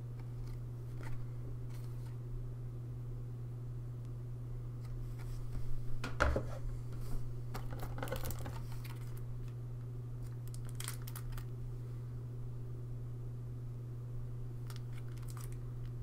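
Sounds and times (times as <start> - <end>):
steady low hum: 0.0 - 16.0
plastic crinkling and clicks: 10.2 - 11.5, 14.6 - 16.0.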